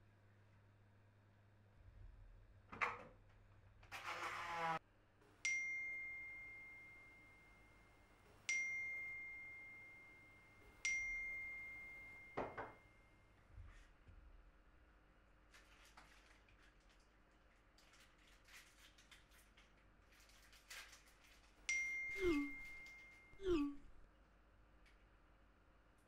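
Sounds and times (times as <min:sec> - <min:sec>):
phone notification dings: 0:21.7 - 0:23.8.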